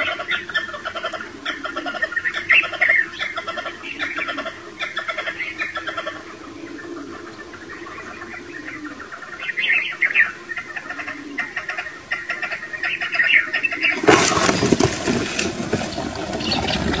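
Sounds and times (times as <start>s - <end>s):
partridges chirping: 0.0s - 14.8s, 16.4s - 17.0s
birds flapping wings: 13.9s - 17.0s.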